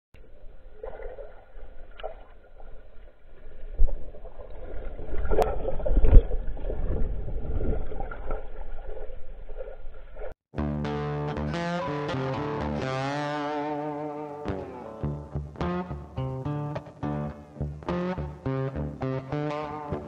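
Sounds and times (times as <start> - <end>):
underwater propeller churning: 0.7 - 10.3.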